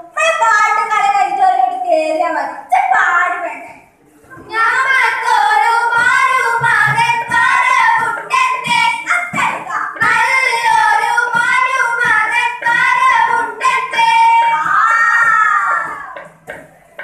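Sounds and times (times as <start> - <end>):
girls singing together: 4.2 - 17.0.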